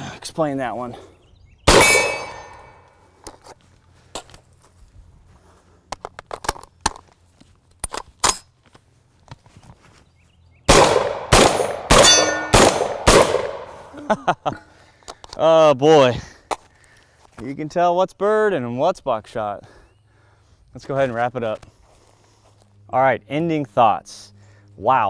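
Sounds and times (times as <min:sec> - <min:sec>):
suppressed shotgun shots: 0:01.7 - 0:02.7, 0:10.7 - 0:13.9
metallic ringing: 0:01.7 - 0:02.9, 0:11.6 - 0:13.0
gun handling clicks and rattles: 0:05.9 - 0:09.8.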